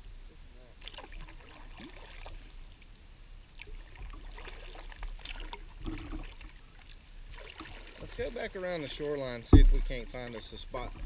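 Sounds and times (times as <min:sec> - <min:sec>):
paddle splashes: 0:00.8 - 0:02.8, 0:03.5 - 0:11.0
water trickling off paddle: 0:00.8 - 0:11.0
low steady rumble: 0:05.1 - 0:11.0.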